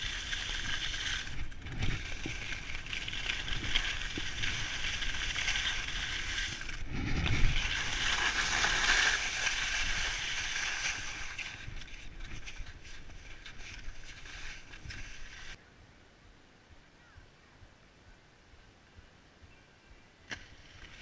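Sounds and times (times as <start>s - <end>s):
skis sliding over packed snow: 0.0s - 15.6s, 20.3s - 21.0s.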